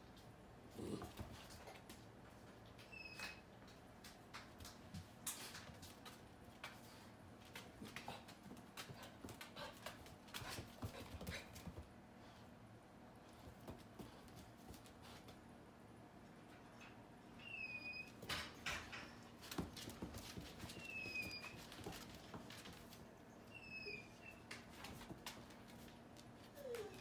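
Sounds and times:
thin high squeak: 0:02.8 - 0:03.4, 0:23.4 - 0:24.5.

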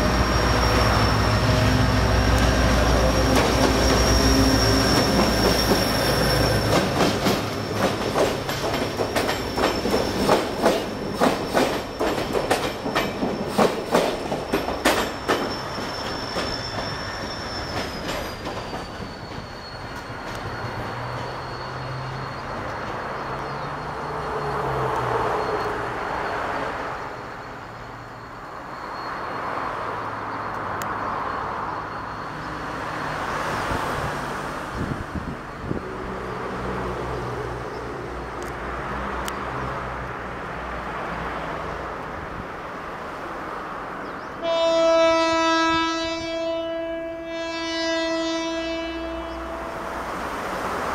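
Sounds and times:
diesel locomotive engine drone: 0:00.0 - 0:50.9
train horn: 0:44.4 - 0:50.2.

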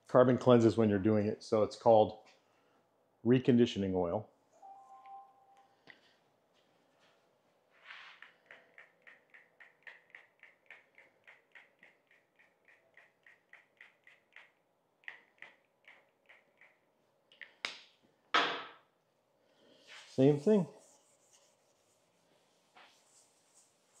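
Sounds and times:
strokes rubbing oil on table: 0:19.9 - 0:24.0.

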